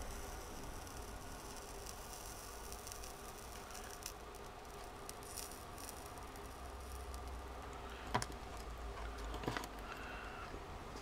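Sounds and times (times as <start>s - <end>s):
low steady hum: 0.0s - 11.0s
small clicks and taps of tools: 7.1s - 10.0s.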